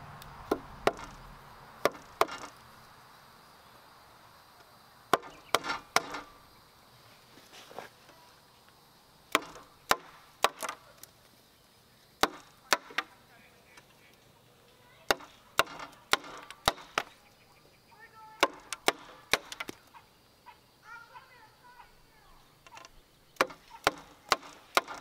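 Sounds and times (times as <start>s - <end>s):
hand tool striking wood: 0.5s - 1.2s, 1.8s - 2.6s, 5.1s - 6.4s, 9.3s - 10.8s, 12.2s - 13.1s, 15.1s - 17.1s, 18.4s - 19.8s, 22.7s - 25.0s.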